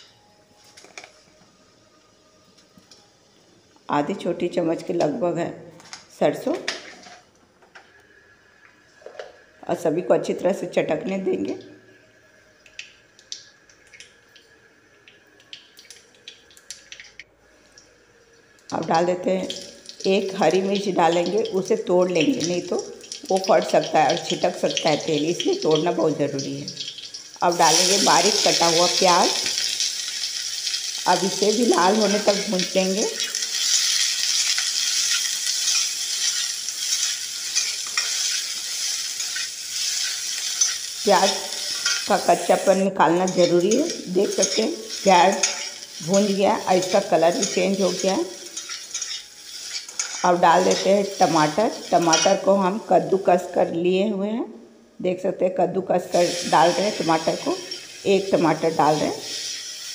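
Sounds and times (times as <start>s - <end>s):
seeds popping in hot oil: 18.6s - 53.5s
metal spatula scraping pan: 43.2s - 52.4s.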